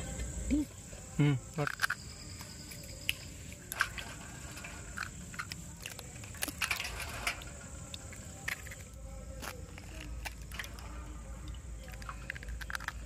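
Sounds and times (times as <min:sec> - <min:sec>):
eggshells cracking: 0:01.6 - 0:04.2, 0:11.8 - 0:13.0.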